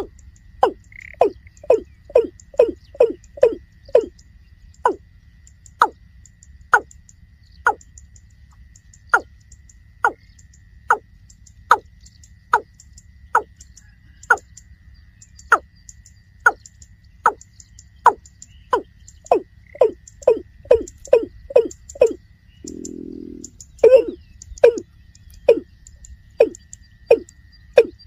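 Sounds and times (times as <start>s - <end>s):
bird calling deep falling note: 18.7s - 24.8s.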